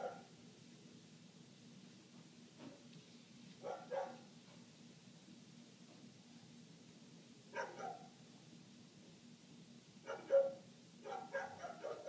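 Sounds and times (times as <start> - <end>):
muffled dog barking: 0.0 - 0.3, 3.6 - 4.3, 7.5 - 8.2, 10.0 - 12.0.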